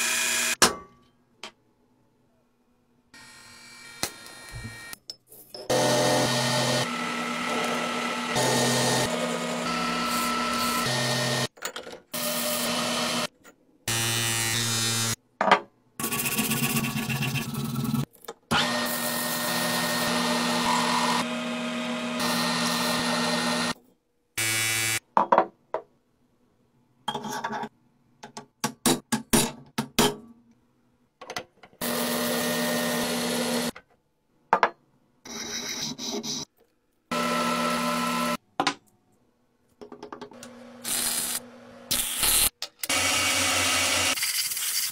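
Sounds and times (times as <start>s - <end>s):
power tools running against metal: 5.7s - 11.5s, 18.6s - 23.8s, 31.8s - 33.7s, 37.1s - 38.4s.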